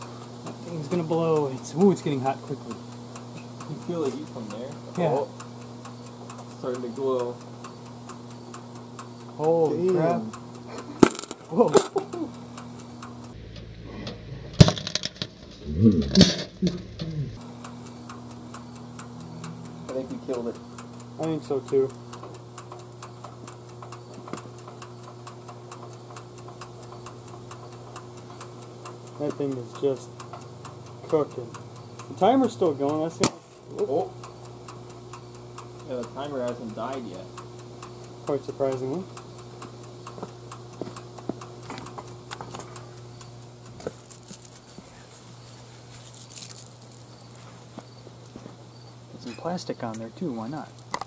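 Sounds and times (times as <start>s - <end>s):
mechanical timer ticking: 0.0s - 13.4s, 17.4s - 45.4s, 46.1s - 48.0s, 49.2s - 51.0s
electrical hum: 0.0s - 51.0s
loud timer click: 0.4s - 13.4s, 17.4s - 44.0s
loud switch click: 33.2s - 33.5s.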